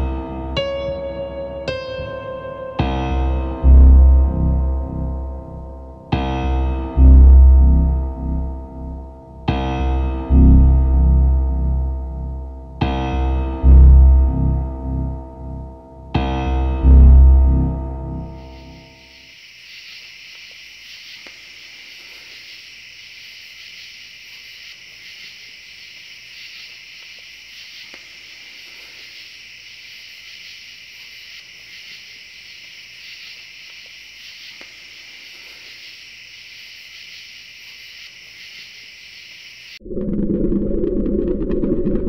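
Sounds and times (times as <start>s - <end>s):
crickets chirping: 18.1s - 39.8s.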